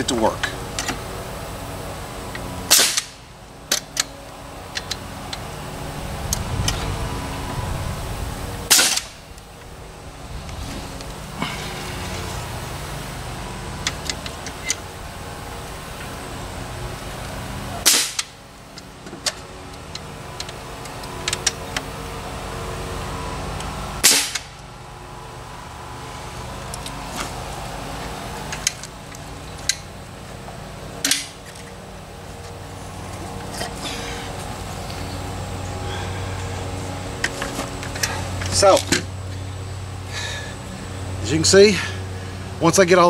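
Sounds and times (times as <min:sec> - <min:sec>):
steady low hum: 0:00.0 - 0:43.0
nail gun firing: 0:02.7 - 0:03.2, 0:08.7 - 0:09.2, 0:17.8 - 0:18.4, 0:24.0 - 0:24.5.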